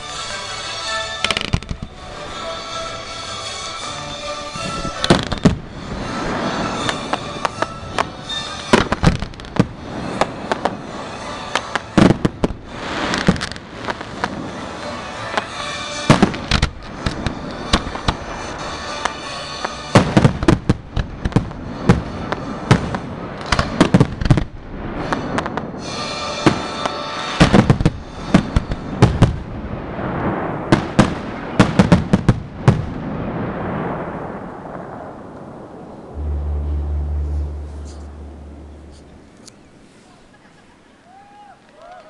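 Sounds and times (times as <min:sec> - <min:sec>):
music: 0:00.0 - 0:24.3, 0:25.2 - 0:29.5, 0:36.2 - 0:39.0
firework crackling: 0:00.1 - 0:40.0
firework bangs: 0:01.2 - 0:02.0, 0:04.9 - 0:39.4
firework hiss: 0:04.8 - 0:19.8, 0:21.1 - 0:29.0.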